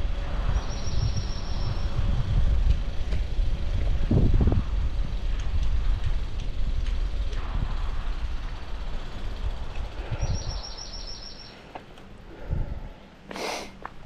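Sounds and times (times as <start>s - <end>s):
wind rumble: 0.0s - 13.3s
bicycle tyres rolling on concrete: 0.0s - 14.0s
bird chirping: 0.6s - 2.0s, 10.1s - 11.7s
short hiss: 13.3s - 13.8s.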